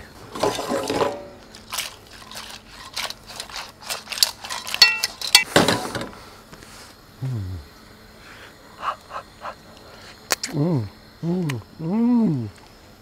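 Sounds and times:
shells clattering in metal pan: 0.4s - 5.5s
ringing metallic clink: 4.8s - 5.2s.

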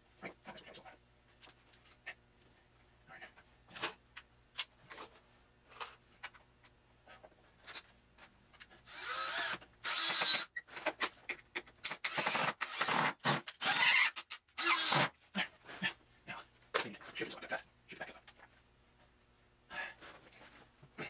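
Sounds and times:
cordless drill bursts: 8.8s - 10.5s, 11.9s - 15.1s.

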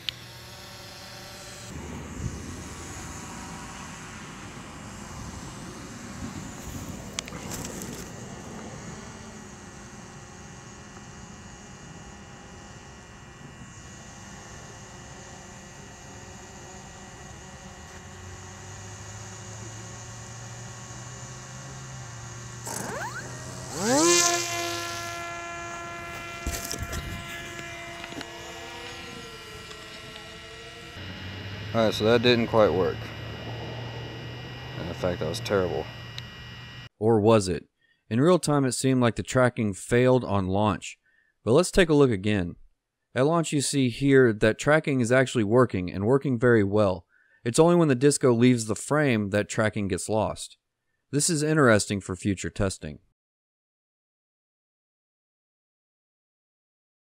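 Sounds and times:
electric motor whine: 0.0s - 36.9s
low rumbling outdoor noise: 0.0s - 36.9s.

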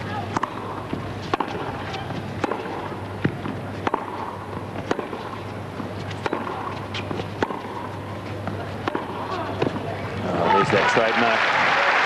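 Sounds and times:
steady low hum: 0.0s - 10.4s
ball bouncing on hard court: 0.3s - 5.4s, 6.2s - 7.8s
tennis ball struck by rackets: 0.3s - 5.5s, 6.1s - 9.9s.

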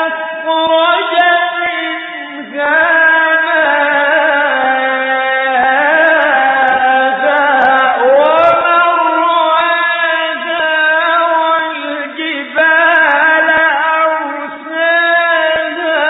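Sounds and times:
man chanting melodically: 0.0s - 16.0s.

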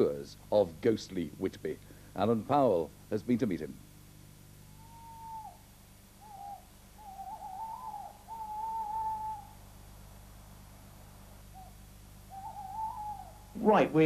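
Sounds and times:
owl hooting: 4.6s - 9.9s, 11.0s - 14.0s.

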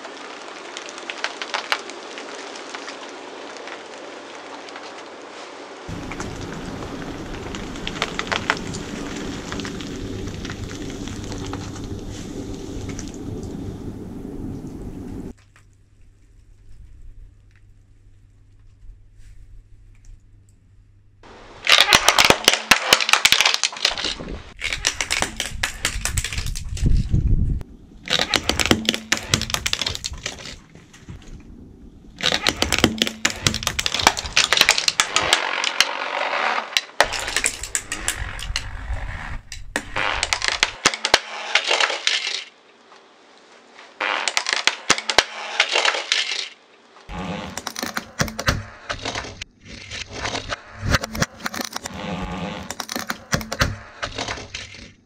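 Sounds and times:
toy cars crunching under tyre: 0.0s - 5.2s, 5.9s - 13.2s, 21.6s - 27.2s, 28.0s - 31.4s, 32.2s - 42.6s, 43.8s - 55.0s
dense clicking: 32.2s - 35.4s.

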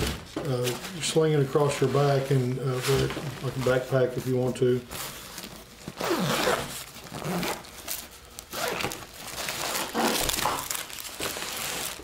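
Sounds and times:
plastic bags crinkling: 0.0s - 12.0s
nylon backpack rustling: 4.8s - 12.0s.

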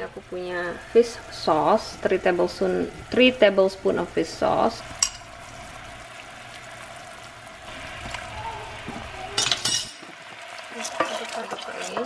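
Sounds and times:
sauce simmering in saucepan: 0.1s - 12.0s
spatula stirring: 9.0s - 12.0s.

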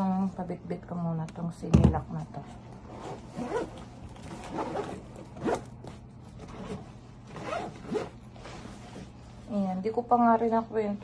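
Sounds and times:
fabric bag rustling: 2.8s - 9.5s
zipper strokes: 2.8s - 9.5s.

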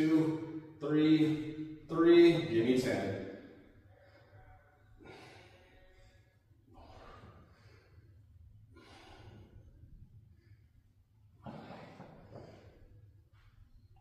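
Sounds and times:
man breathing hard: 3.2s - 13.7s.

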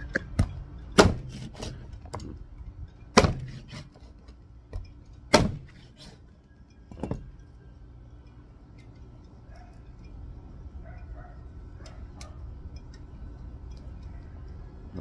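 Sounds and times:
cleaver chopping on wooden board: 3.2s - 3.8s, 5.3s - 5.7s.

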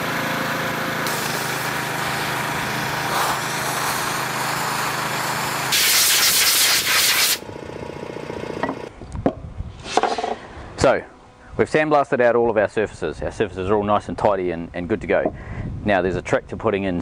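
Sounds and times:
machine hum: 0.0s - 5.9s, 7.4s - 9.0s
sandblaster hissing: 1.0s - 7.4s.

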